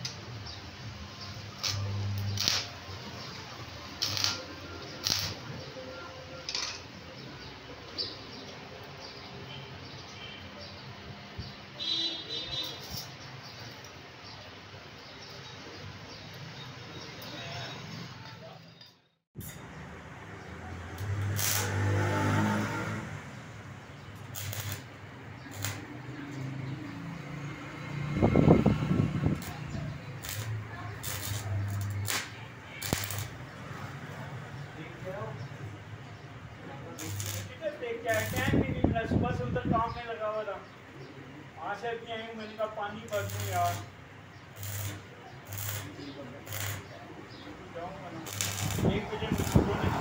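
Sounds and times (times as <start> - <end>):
welding arc crackling: 0.0 - 5.6, 19.4 - 27.8, 28.5 - 33.7, 36.8 - 38.8, 42.9 - 47.4, 48.0 - 50.0.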